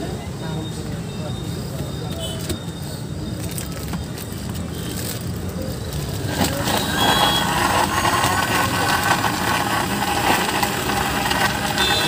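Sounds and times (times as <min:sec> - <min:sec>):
mixer-grinder motor running: 0:05.2 - 0:12.0.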